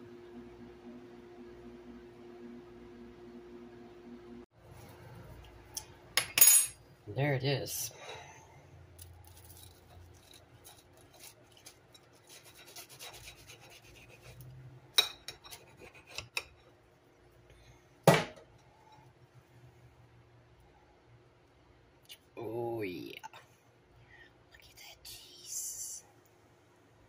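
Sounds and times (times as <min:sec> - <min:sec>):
knife scraping toast crust: 0:09.2 - 0:16.7.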